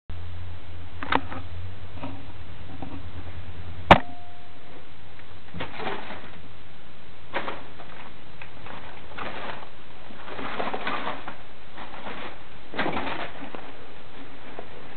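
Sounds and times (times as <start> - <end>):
low hum: 0.1 - 14.9
short faint tone: 3.9 - 4.9
rustling in wood shavings: 7.3 - 14.9.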